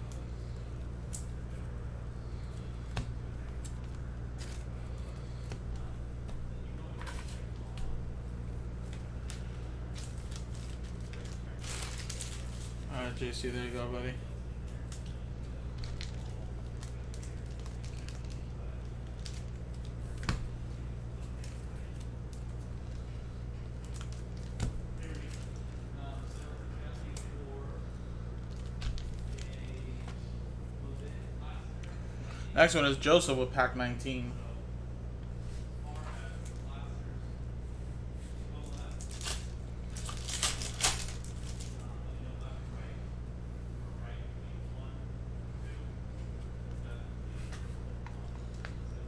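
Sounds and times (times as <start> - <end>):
steady low hum: 0.0 - 49.0
trading cards rustling: 2.2 - 5.9, 8.8 - 12.9, 38.6 - 41.9
trading cards rustling and clicking: 38.6 - 41.8.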